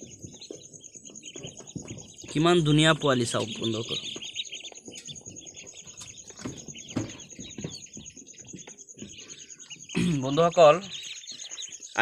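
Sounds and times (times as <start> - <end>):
ducklings peeping: 0.0 - 12.0.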